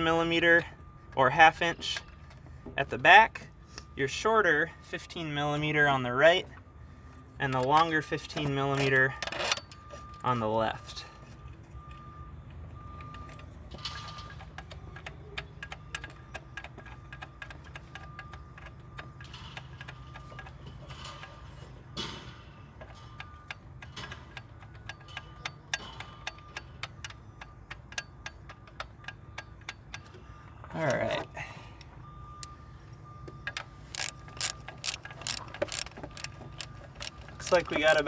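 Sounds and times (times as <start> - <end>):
ratchet wrench clicking: 33.5 - 38.0.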